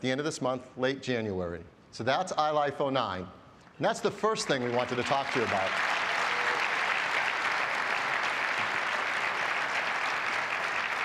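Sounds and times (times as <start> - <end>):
crowd applauding: 4.2 - 11.0.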